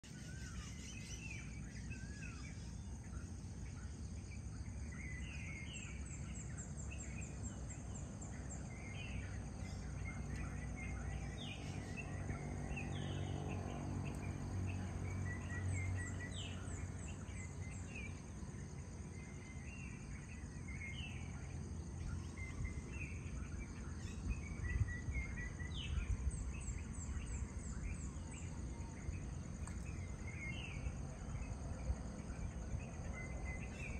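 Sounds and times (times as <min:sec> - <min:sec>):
birds chirping: 0:00.0 - 0:33.9
steady low rumble: 0:01.6 - 0:33.9.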